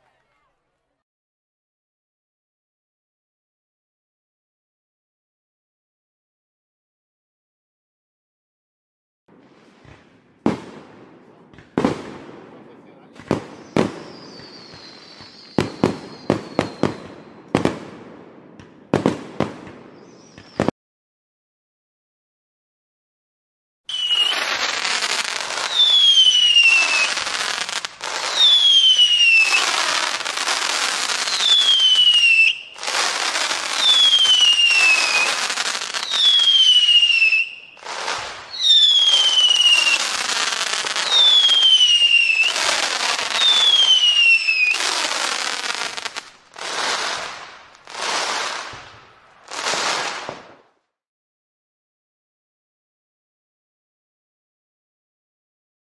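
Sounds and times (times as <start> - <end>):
fireworks crackling: 9.3 - 20.7, 23.9 - 50.8
falling firework whistle: 13.3 - 17.7, 19.4 - 20.7, 23.9 - 50.6.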